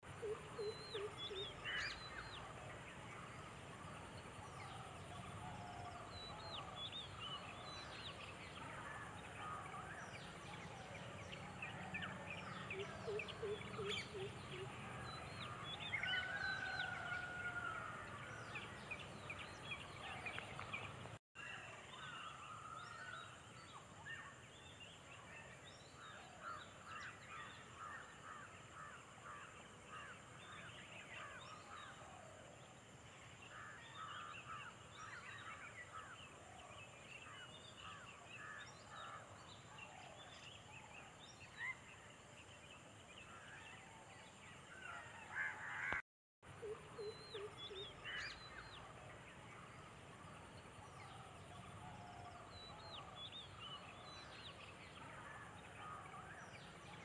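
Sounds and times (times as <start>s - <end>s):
birds calling: 0.0s - 21.2s.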